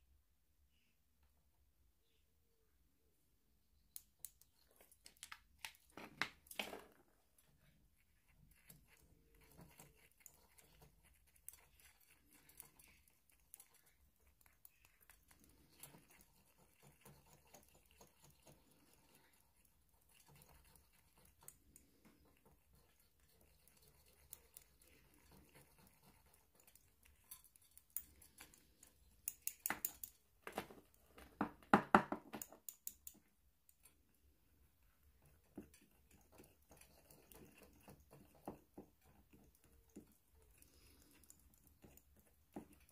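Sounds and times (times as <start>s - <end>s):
stick scraping and clicking in glass jar: 8.3s - 30.3s.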